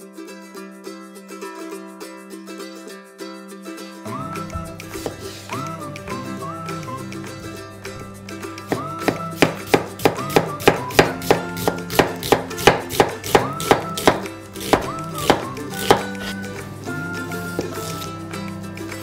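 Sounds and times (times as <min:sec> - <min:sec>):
background music: 0:00.0 - 0:19.0
knife slicing on wooden board: 0:08.7 - 0:16.4.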